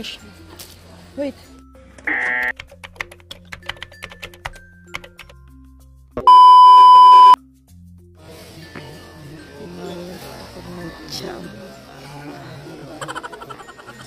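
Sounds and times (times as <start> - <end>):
soft background music: 0.0 - 14.0
loud steady beep: 6.3 - 7.4.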